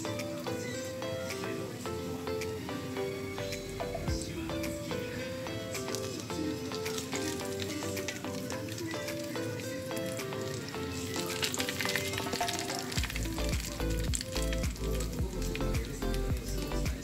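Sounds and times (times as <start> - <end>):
background music with bass line: 0.0 - 17.0.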